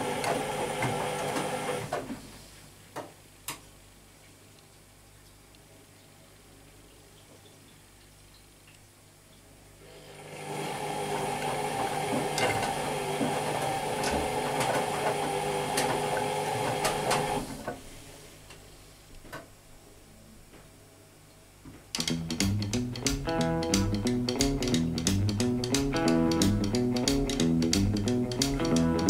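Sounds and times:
washing machine humming: 0.0 - 2.5, 9.8 - 18.5
guitar music: 22.0 - 29.0.

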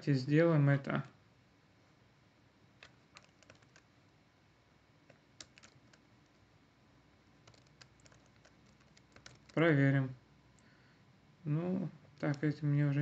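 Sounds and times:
computer keyboard typing: 2.8 - 3.9, 5.1 - 6.4, 7.4 - 9.7, 12.2 - 12.6.

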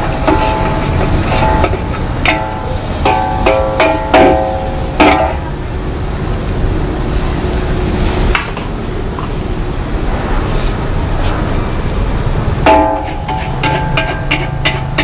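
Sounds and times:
metal spatula clanging on wok: 0.0 - 5.5, 12.6 - 15.0
gas burner rumble: 0.0 - 15.0.

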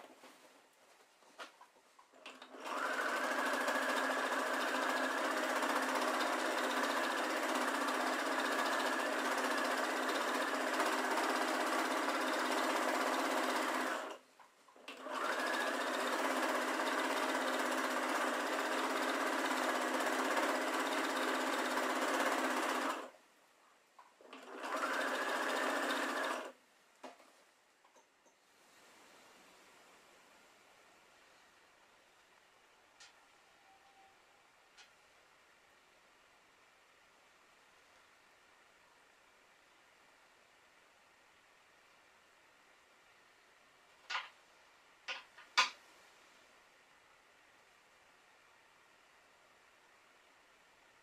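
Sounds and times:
sewing machine stitching: 2.1 - 14.2, 14.8 - 23.2, 24.2 - 26.6.

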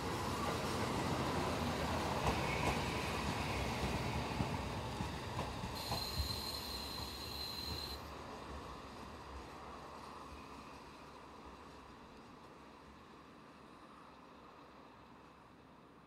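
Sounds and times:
diesel railcar engine rumble: 4.2 - 9.4
high steady whine: 5.8 - 8.0.

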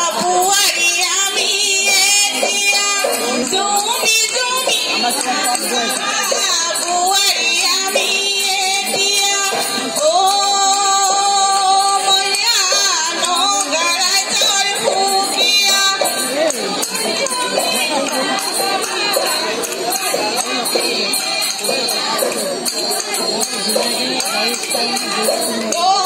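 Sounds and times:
women singing folk song over pa: 0.0 - 26.0.

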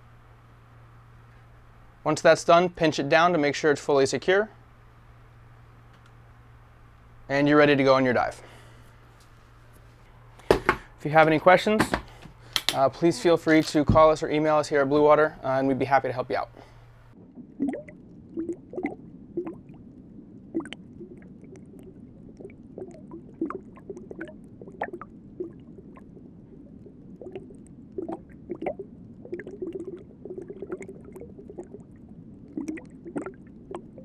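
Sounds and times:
underwater wash of water: 17.1 - 34.0
bubbling pops and gurgles: 17.2 - 34.0.

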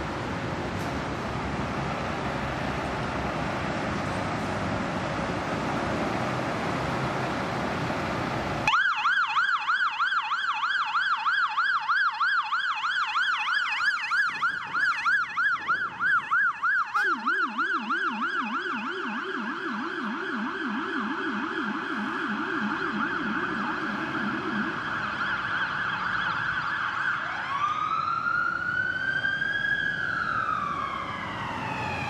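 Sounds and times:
lower-pitched yelping siren: 8.6 - 32.0
electronic siren yelping: 8.7 - 32.0.

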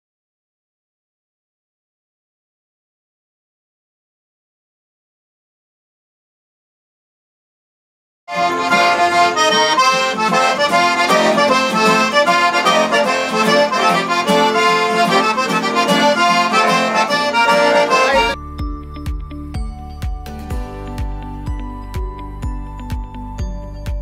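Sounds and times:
accordion music: 8.3 - 18.4
music with low beat and chimes: 17.4 - 24.0.

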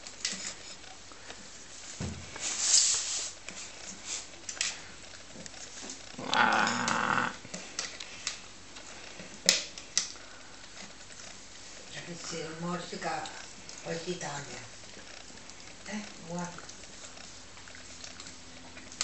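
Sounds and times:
dog growling: 6.1 - 7.5.

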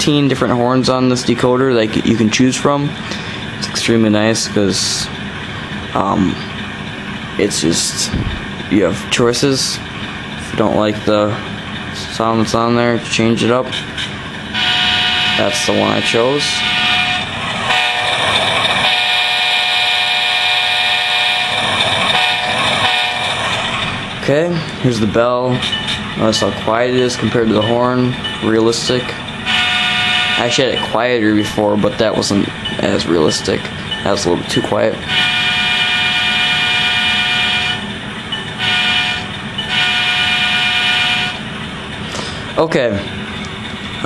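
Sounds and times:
locomotive air horn through small speaker: 14.5 - 18.2, 18.8 - 23.4, 29.4 - 30.6, 35.1 - 37.8, 38.6 - 41.4.

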